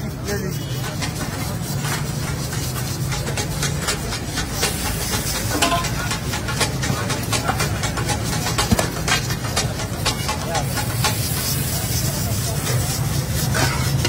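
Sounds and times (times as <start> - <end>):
gas burners rumbling: 0.4 - 14.0.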